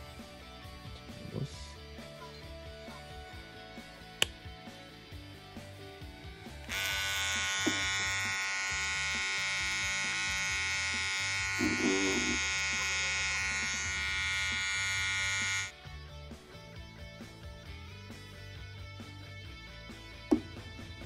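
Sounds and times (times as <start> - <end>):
background music: 0.0 - 21.0
hair trimmer buzzing: 6.6 - 15.7.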